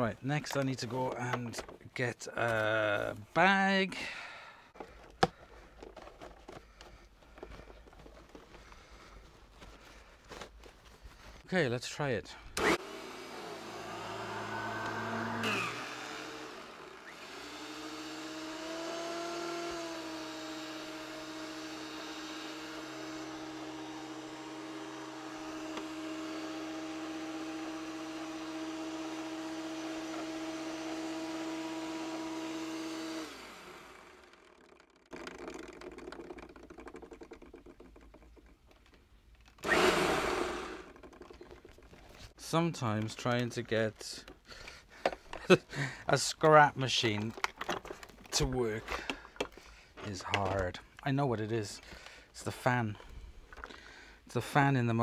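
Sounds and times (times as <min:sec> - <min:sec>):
vacuum cleaner motor whining: 0:12.6 - 0:35.8, 0:39.6 - 0:41.3
loud handling noise: 0:34.0 - 0:42.3, 0:47.0 - 0:51.0.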